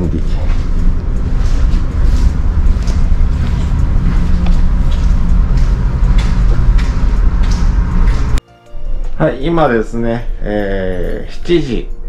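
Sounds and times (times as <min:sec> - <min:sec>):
ship engine low rumble: 0:00.0 - 0:08.4.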